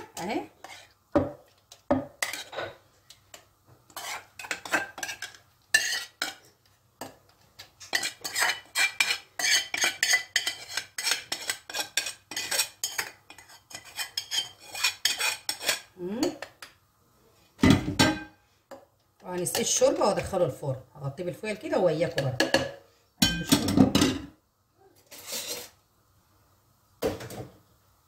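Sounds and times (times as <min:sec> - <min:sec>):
metal spoon scraping a pot: 0:00.0 - 0:01.0, 0:02.1 - 0:15.9, 0:25.0 - 0:25.8.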